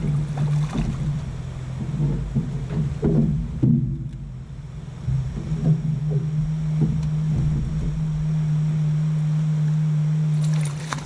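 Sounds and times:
fish splashing at water surface: 0:00.0 - 0:01.6, 0:10.4 - 0:11.0
boat motor humming: 0:00.0 - 0:11.0.

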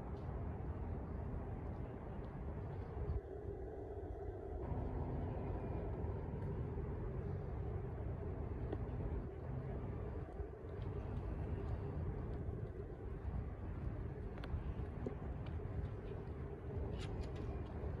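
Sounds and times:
faint hum: 0:00.0 - 0:18.0.

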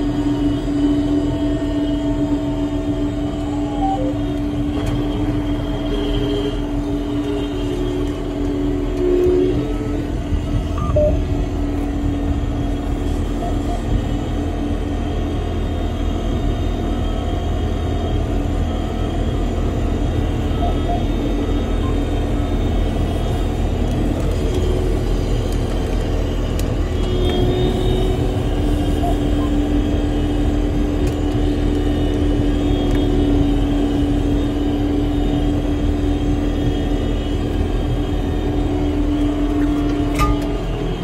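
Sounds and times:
engine rumble in cab: 0:00.0 - 0:41.0
steady tone: 0:02.5 - 0:04.7, 0:09.2 - 0:14.1.

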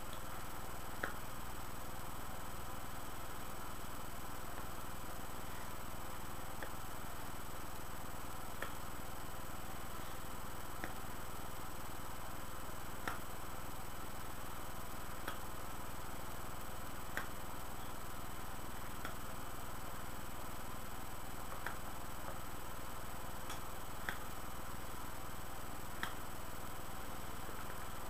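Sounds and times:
electrical hum and hiss: 0:00.0 - 0:28.0.

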